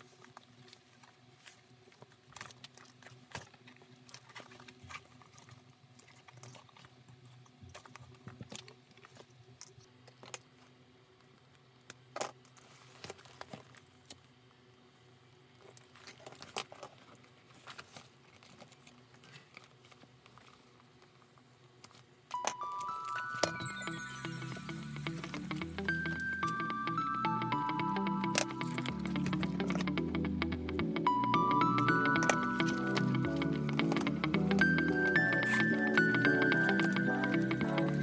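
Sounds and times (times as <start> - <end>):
low steady hum: 22.2 - 38.0.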